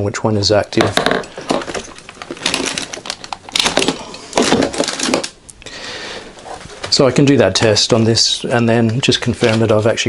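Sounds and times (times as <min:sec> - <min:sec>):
cables and tools clattering: 0:00.7 - 0:05.5.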